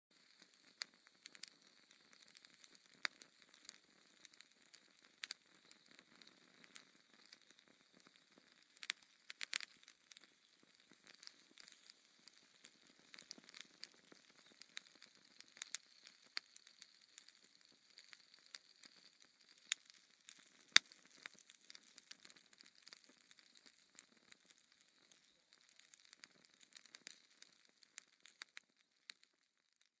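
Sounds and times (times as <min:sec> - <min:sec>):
embers crackling and popping: 0:00.1 - 0:30.0.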